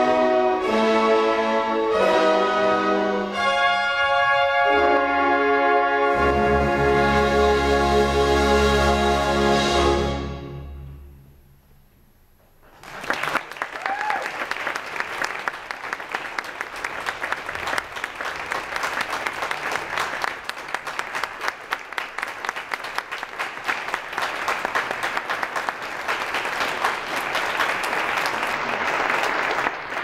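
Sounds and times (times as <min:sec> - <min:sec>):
audience applauding: 0:12.7 - 0:30.0.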